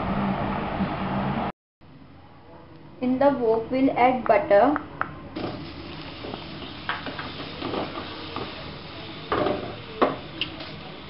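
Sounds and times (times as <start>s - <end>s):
butter sizzling: 5.4s - 11.0s.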